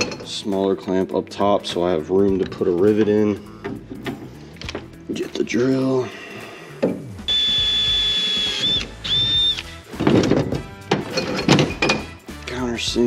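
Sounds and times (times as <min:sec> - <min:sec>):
cordless drill whining: 0:07.3 - 0:09.8.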